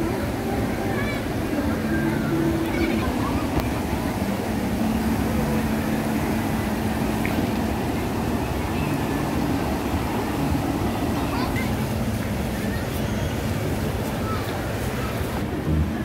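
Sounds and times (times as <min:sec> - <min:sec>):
water rushing over rocks: 0:00.0 - 0:16.0.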